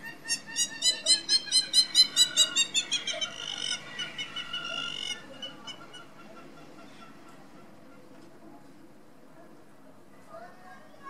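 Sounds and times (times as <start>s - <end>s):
bird laughing call: 0.0s - 7.8s.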